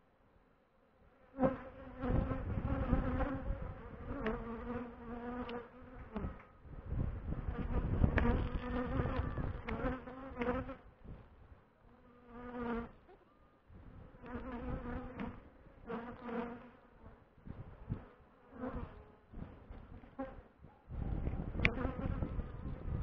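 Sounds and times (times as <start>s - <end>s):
honeybees buzzing: 1.2s - 6.5s, 7.3s - 10.9s.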